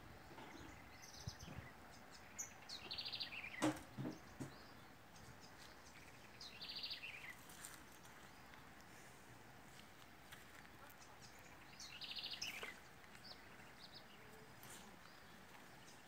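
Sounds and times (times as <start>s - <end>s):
footsteps: 7.3s - 11.4s.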